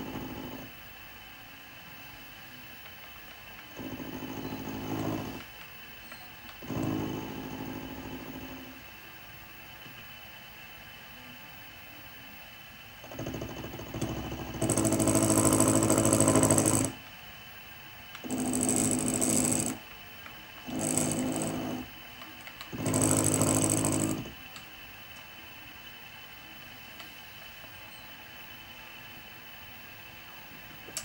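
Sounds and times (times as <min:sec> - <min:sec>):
spindle motor running: 0:00.0 - 0:00.8, 0:02.6 - 0:09.0, 0:13.0 - 0:17.1, 0:18.0 - 0:29.6
end mill cutting steel: 0:22.7 - 0:24.4.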